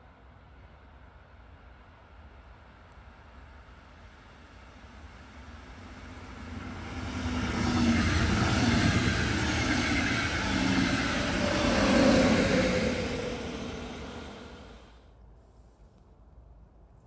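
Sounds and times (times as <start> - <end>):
train wheels rolling on rail: 3.0 - 14.9
locomotive humming tone: 4.8 - 14.9.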